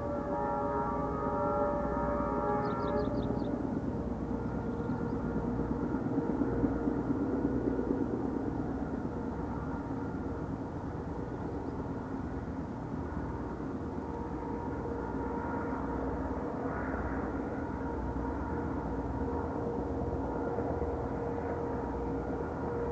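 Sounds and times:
train horn tones: 0.0s - 7.0s, 13.2s - 22.9s
diesel locomotive engine drone: 0.0s - 22.9s.

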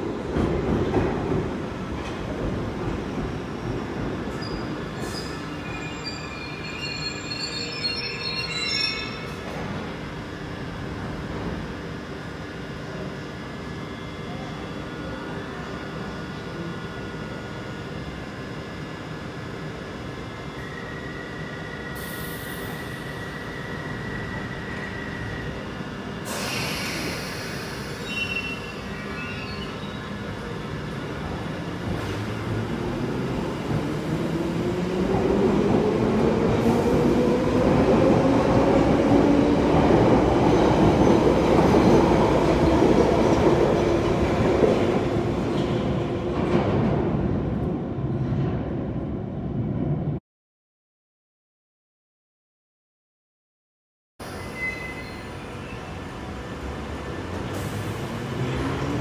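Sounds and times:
train wheel squeal: 4.3s - 9.8s, 20.4s - 30.3s, 54.2s - 56.0s.

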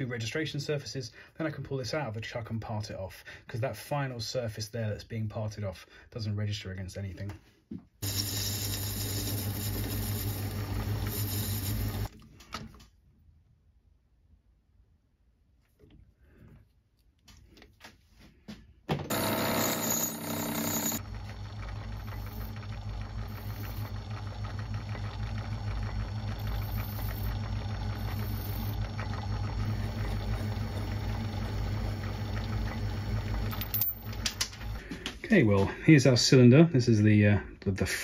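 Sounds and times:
file against spinning metal: 8.0s - 12.1s, 19.1s - 21.0s, 26.4s - 31.1s
metal lathe humming: 8.0s - 12.1s, 19.1s - 34.8s.

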